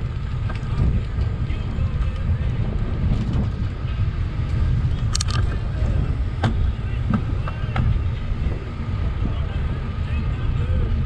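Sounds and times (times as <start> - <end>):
bicycle clicks and rattles: 0.0 - 8.2
wind buffeting microphone: 0.0 - 11.0.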